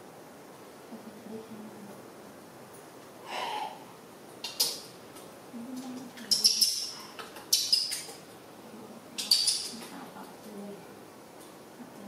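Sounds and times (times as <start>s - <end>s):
young animal squeaking: 6.2s - 8.1s.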